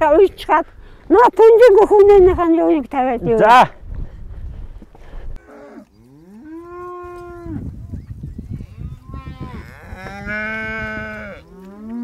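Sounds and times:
cattle mooing: 5.4s - 7.6s, 8.8s - 12.0s.

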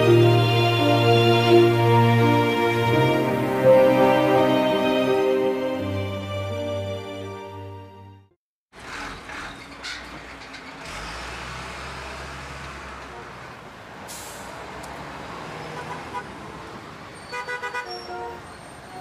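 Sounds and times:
road traffic engines: 8.7s - 19.0s
heavy vehicle rumbling past: 8.8s - 17.2s.

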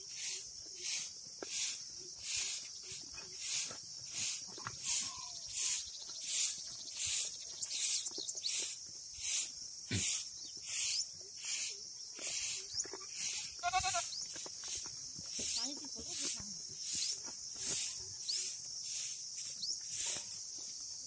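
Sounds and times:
goat bleating: 12.9s - 14.2s.

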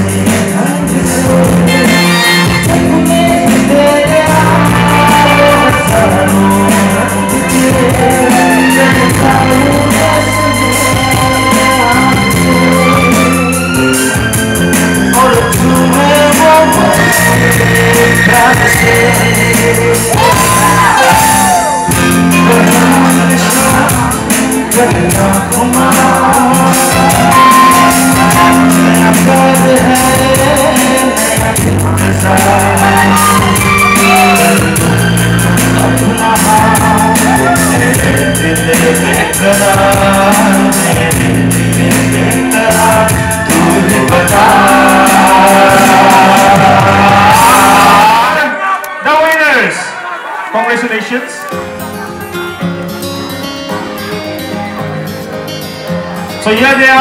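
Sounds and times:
band with guitar and drums: 0.0s - 48.6s, 51.4s - 57.0s
man singing into a microphone: 0.0s - 50.0s, 56.3s - 57.0s
crowd shouting and whooping: 4.4s - 24.8s, 26.2s - 31.5s, 32.2s - 40.4s, 41.8s - 52.6s.

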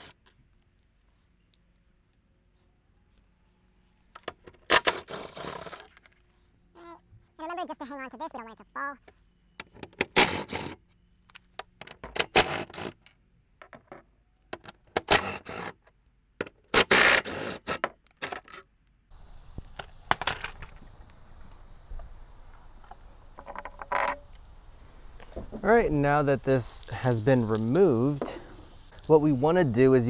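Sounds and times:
insect chirring: 5.0s - 9.2s, 19.1s - 30.0s.

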